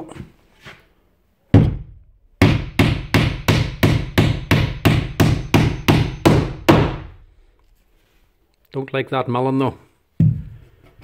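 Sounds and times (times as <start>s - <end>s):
hammer driving a nail: 1.6s - 7.1s.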